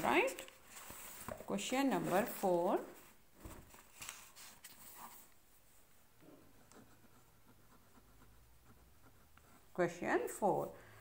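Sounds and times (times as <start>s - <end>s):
notebook handling and rubbing: 0.0s - 6.0s
pen scratching on paper: 6.5s - 9.9s.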